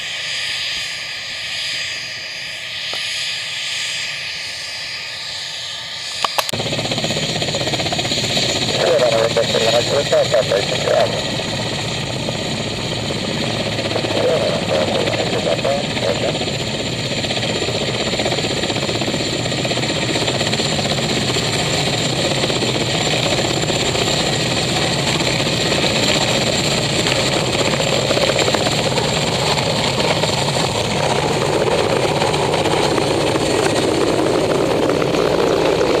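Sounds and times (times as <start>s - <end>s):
turbine whine: 0.0s - 36.0s
helicopter rotor beating: 3.3s - 36.0s.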